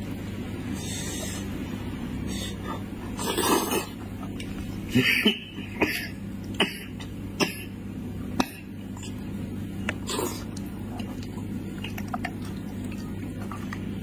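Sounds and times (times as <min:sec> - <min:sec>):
steady low hum: 0:00.0 - 0:14.0
noisy suck or breath: 0:00.7 - 0:01.6, 0:02.2 - 0:03.9.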